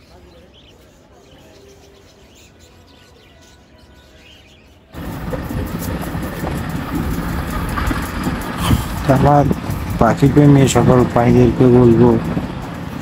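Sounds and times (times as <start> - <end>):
loud steady din: 5.0 - 13.0.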